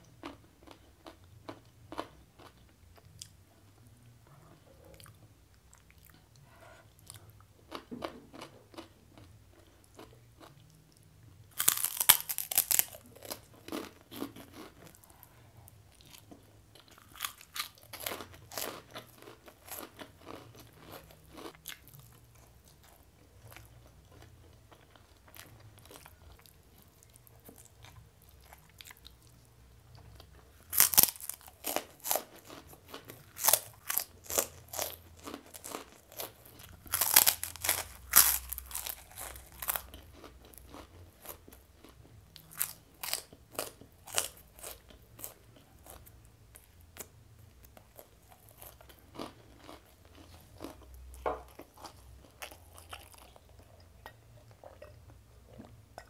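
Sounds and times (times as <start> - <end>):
cracker crunching and chewing: 0.1 - 3.4, 4.9 - 56.0
soft mouth sounds: 53.3 - 56.0.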